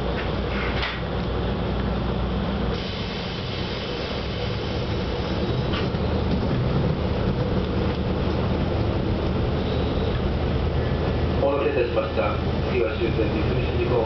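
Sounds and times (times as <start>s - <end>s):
low engine drone: 0.0s - 14.0s
wheels on rails: 3.4s - 11.2s.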